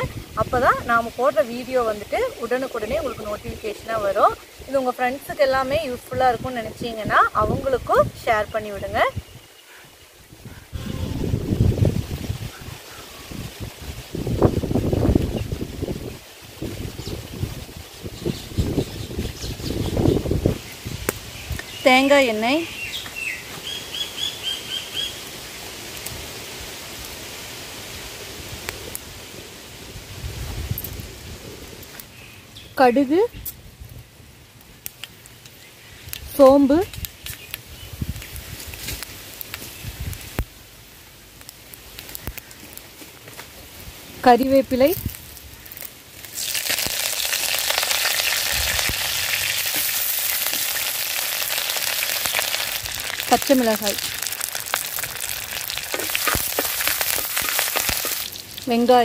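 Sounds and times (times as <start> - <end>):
leaves sizzling in hot oil: 0.0 - 59.0
bird chirping: 16.8 - 25.2
oil popping: 45.7 - 58.8.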